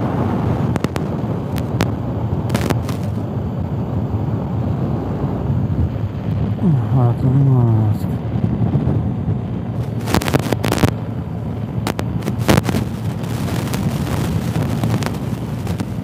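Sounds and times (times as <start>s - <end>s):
wind buffeting microphone: 0.0s - 16.0s
motorcycle engine cruising: 8.2s - 16.0s.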